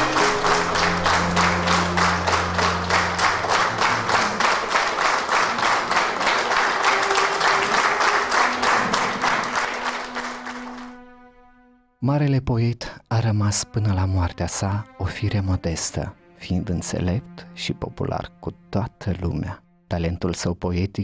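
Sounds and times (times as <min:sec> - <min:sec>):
rhythmic clapping in unison: 0:00.0 - 0:11.1
held notes of music: 0:00.0 - 0:11.8.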